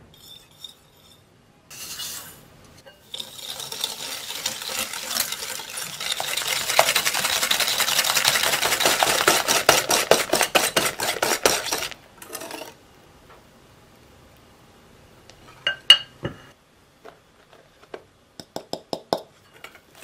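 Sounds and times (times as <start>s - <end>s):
whisk scraping against glass bowl: 0.2s - 12.7s.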